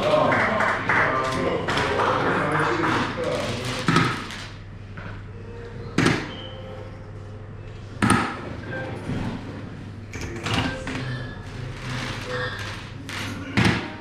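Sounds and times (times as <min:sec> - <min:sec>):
darts hitting electronic dartboard: 0:06.0 - 0:06.4, 0:08.0 - 0:08.6.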